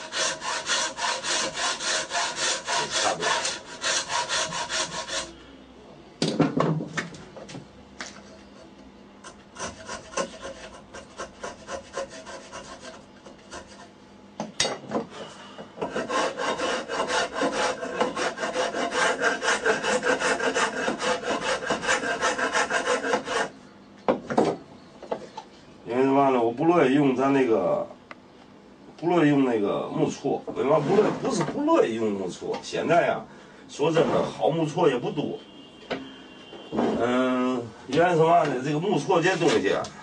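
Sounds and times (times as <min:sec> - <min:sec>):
file scraping wood: 0:00.0 - 0:05.4, 0:09.2 - 0:13.9, 0:15.8 - 0:23.5.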